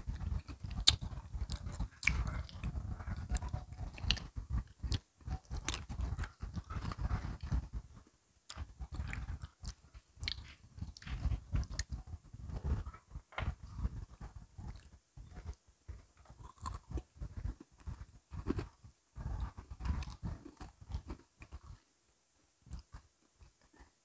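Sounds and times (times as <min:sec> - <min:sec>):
chewing and crunching cookies: 0:00.0 - 0:21.8, 0:22.6 - 0:24.0
wet mouth sounds: 0:00.1 - 0:07.6.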